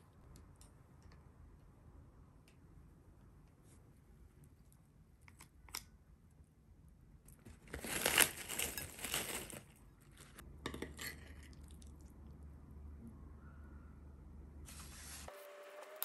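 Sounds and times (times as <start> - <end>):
plastic packet crinkling: 7.4 - 10.4.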